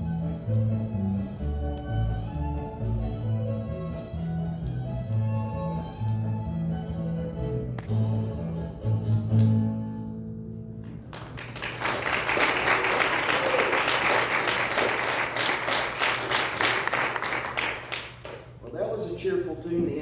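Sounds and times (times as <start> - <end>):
music with held low notes: 0.0 - 11.0
crowd applauding: 10.8 - 18.5.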